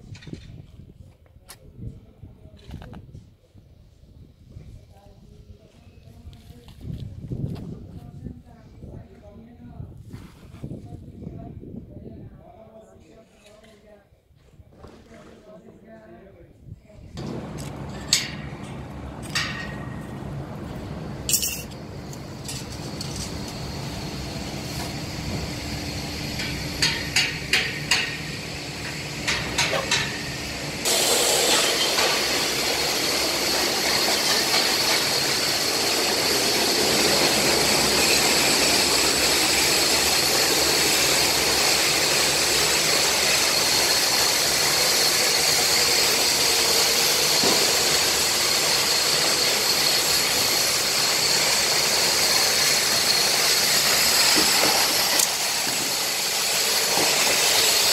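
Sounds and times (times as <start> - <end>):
loud machine noise with hiss: 17.2 - 57.9
metal knocks on steel frames: 17.8 - 20.0, 29.3 - 30.2.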